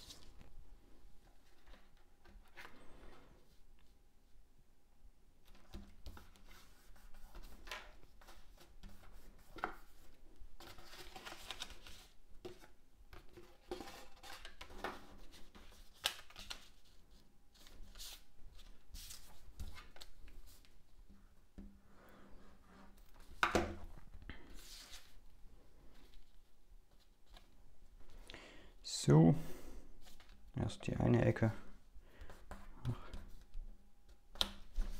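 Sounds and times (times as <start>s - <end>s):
paper rustling and sliding: 5.5s - 20.7s, 24.4s - 25.2s.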